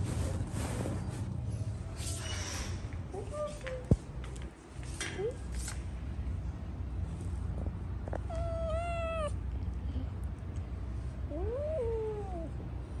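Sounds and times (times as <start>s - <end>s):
cat meowing: 8.2s - 9.4s.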